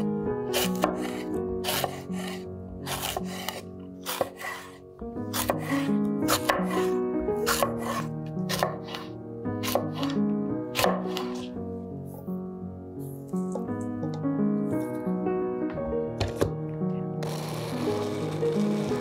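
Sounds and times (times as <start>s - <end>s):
background music: 0.0s - 19.0s.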